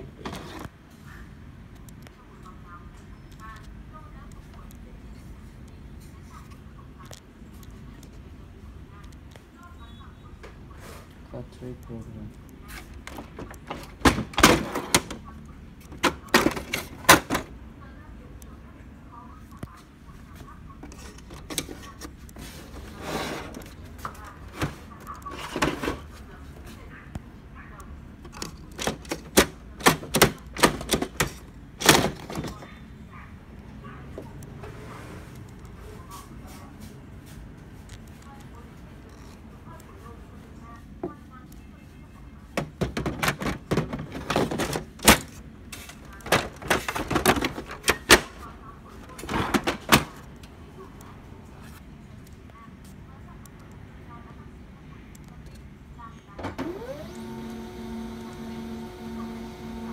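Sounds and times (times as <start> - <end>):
plastic sliding scrape: 0.2 - 0.7, 20.9 - 26.2
plastic clicks and knocks: 42.6 - 45.4.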